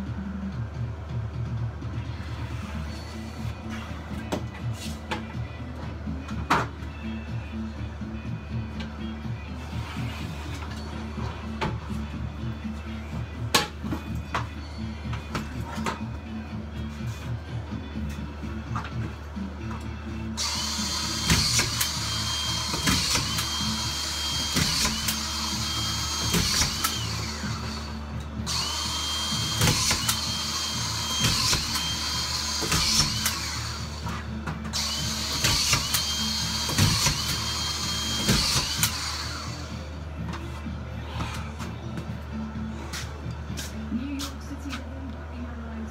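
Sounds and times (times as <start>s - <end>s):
cordless drill driving screws: 20.4s - 39.8s.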